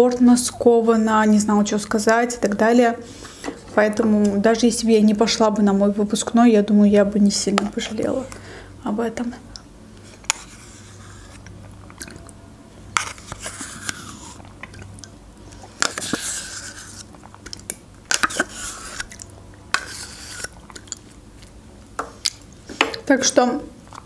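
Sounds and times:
spoon scraping inside cup: 10.1s - 11.5s, 13.0s - 14.4s, 15.8s - 17.1s, 18.1s - 21.1s
mouth eating sounds: 11.8s - 12.4s.

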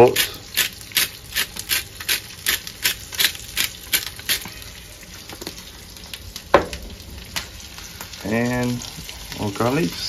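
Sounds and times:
fish frying in butter: 0.0s - 10.0s
seasoning shaker shaking: 0.1s - 4.5s.

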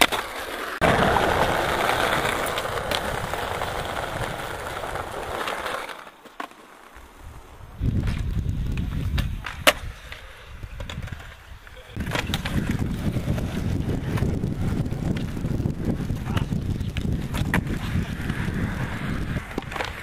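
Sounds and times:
skateboard clack: 0.0s - 20.0s
skateboard wheels rolling on concrete: 0.0s - 20.0s
wind on microphone: 7.2s - 20.0s.

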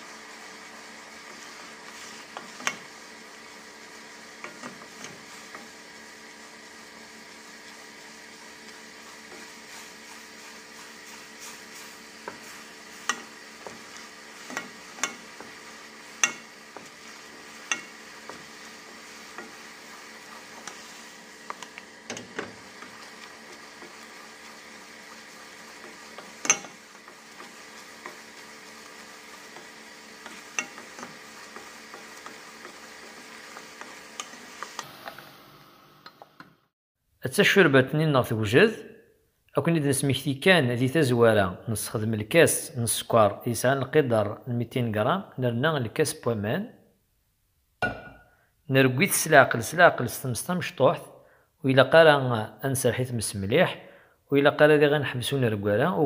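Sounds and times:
caramel sauce sizzling and bubbling: 0.0s - 35.3s
wooden spoon knocking pan: 14.4s - 18.5s.

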